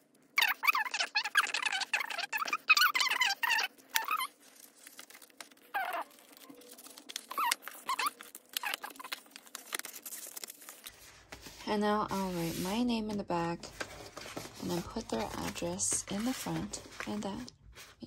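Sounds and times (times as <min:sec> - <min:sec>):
squeaky animal calls: 0:00.4 - 0:04.4, 0:05.6 - 0:09.3
paper rustling and tapping: 0:06.2 - 0:11.6, 0:13.7 - 0:17.9.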